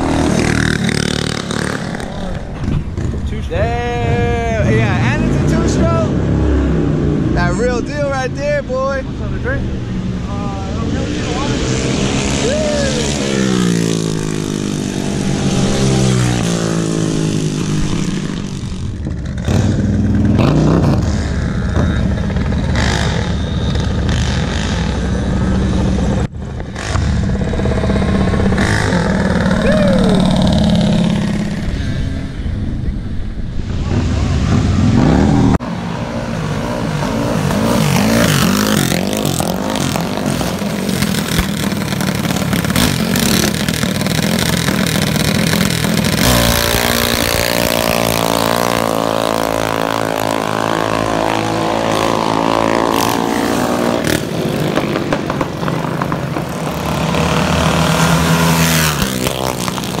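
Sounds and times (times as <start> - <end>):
minibike engines revving: 0.0 - 60.0.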